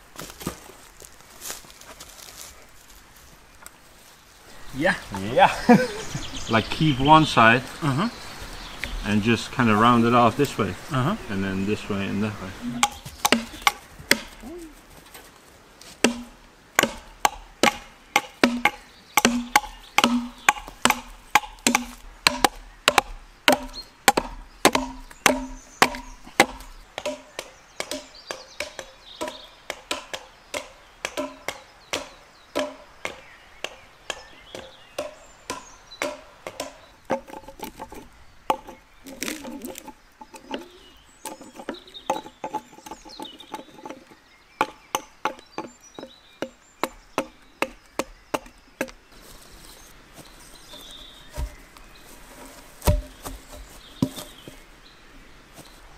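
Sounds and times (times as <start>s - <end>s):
hatchets chopping wood: 12.8s - 14.4s, 16.0s - 49.0s, 52.8s - 53.4s.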